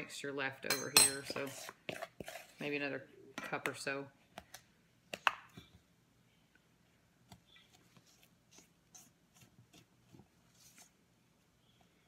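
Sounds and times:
spatula scraping steel bowl: 1.2 - 2.8.

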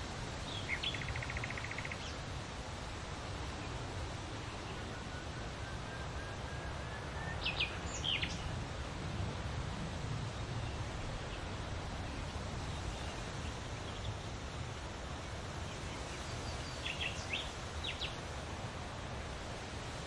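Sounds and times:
bird chirps: 0.6 - 2.0.

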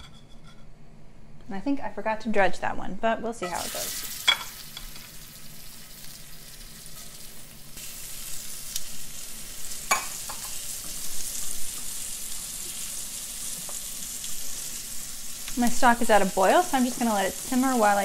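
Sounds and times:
fish sizzling in hot oil: 3.6 - 18.0
metal tongs clinking on pan: 9.9 - 10.6.

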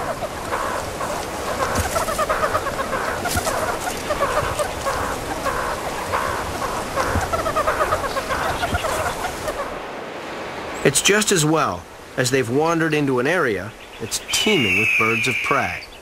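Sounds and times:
meerkats chirping and clucking: 0.0 - 9.8.

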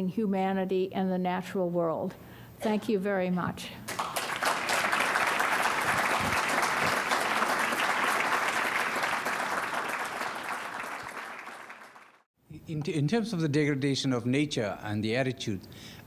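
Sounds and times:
audience applauding: 3.9 - 12.3.

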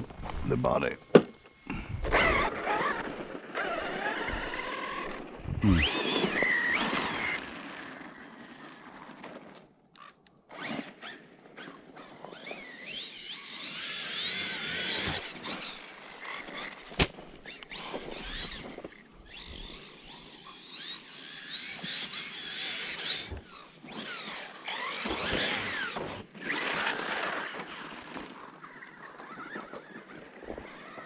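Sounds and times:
electric motor whining: 1.5 - 9.6, 12.1 - 27.6.

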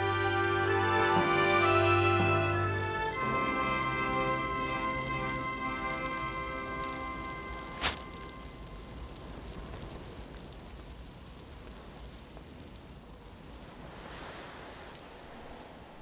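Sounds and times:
wind-like hiss: 0.0 - 16.0.

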